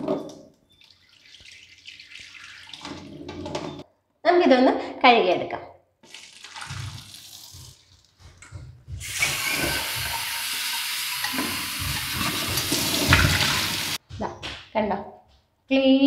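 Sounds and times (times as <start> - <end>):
water sloshing in flask: 0.0 - 3.8, 6.1 - 10.6
water splashing into steel sink: 0.7 - 3.8, 6.0 - 8.1, 9.0 - 14.0.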